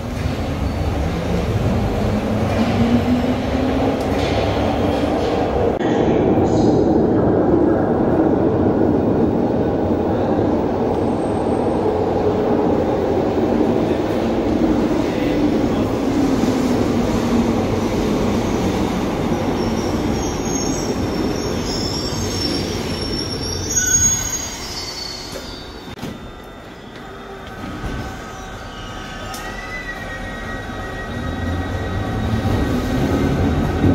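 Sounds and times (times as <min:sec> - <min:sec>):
subway train rumble: 0:00.0 - 0:33.9
train wheel squeal: 0:19.5 - 0:33.5.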